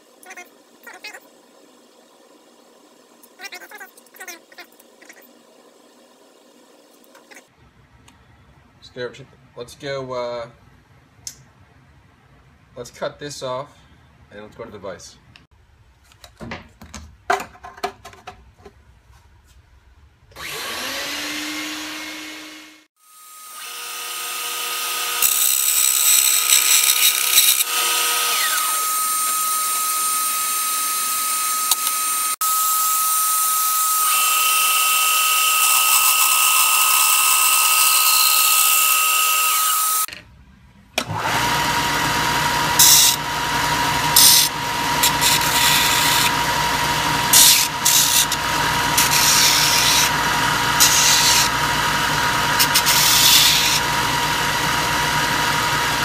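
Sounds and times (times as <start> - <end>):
belt sander grinding metal: 20.3 - 22.9, 23.5 - 40.1, 41.0 - 56.0
band saw cutting aluminium: 20.3 - 40.1, 41.0 - 56.0.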